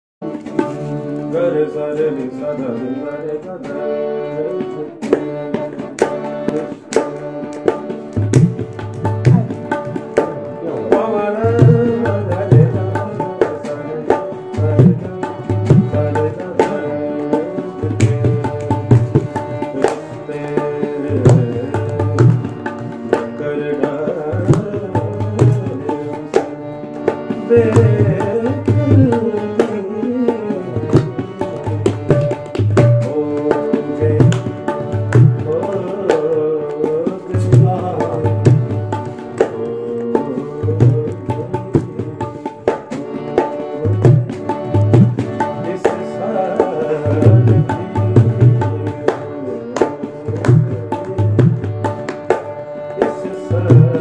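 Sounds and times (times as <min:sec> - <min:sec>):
tabla drumming: 0:00.2 - 0:54.0.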